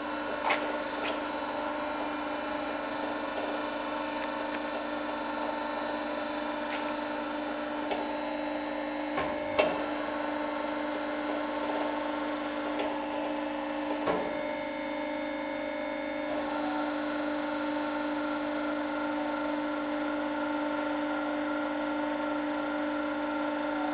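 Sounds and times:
machine humming: 0.0 - 23.9.

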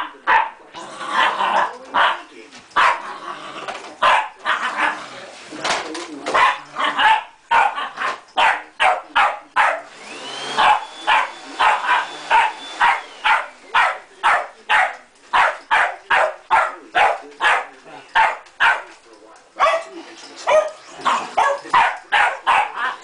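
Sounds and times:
dog barking rapidly: 0.3 - 0.6, 2.8 - 3.0, 4.0 - 4.9, 6.4 - 9.9, 10.5 - 18.9, 19.6 - 19.9, 20.5 - 23.0
vacuum cleaner motor running: 9.8 - 14.0.

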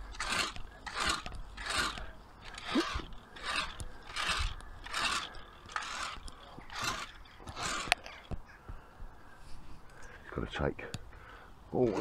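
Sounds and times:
metal rake scraping lawn: 0.0 - 8.3.

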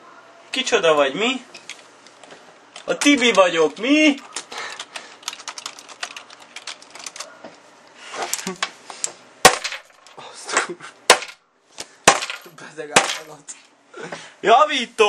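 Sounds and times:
handling and rustling: 1.5 - 10.2
computer keyboard typing: 2.8 - 7.3.

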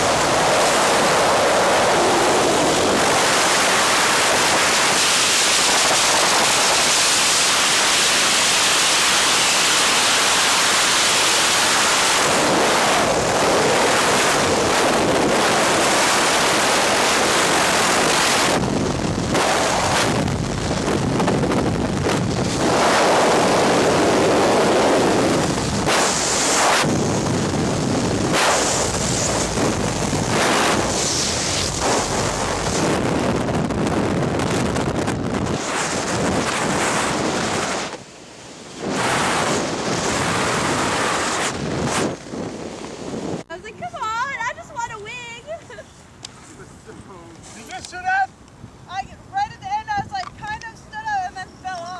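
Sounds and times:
wind rushing over microphone: 0.0 - 51.9.

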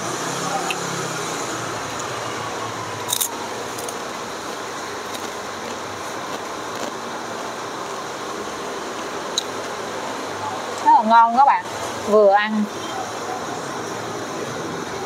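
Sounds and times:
fans humming: 0.0 - 15.0
traffic hum: 0.0 - 15.0
rice cracker crunching: 3.1 - 4.0, 5.0 - 7.5.

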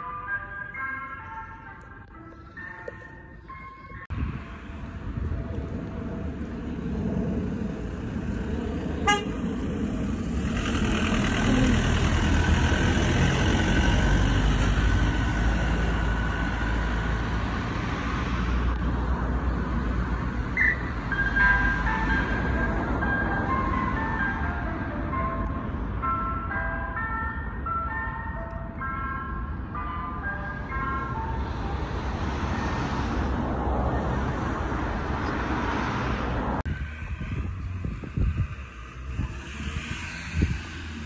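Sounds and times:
ice cream van chime tune: 0.0 - 4.2, 21.1 - 32.2
vehicle engine and road noise: 0.0 - 41.0.

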